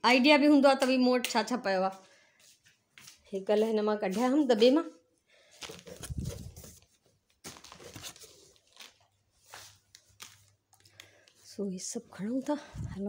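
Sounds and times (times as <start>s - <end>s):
cardboard rustling and scraping: 5.6s - 10.0s.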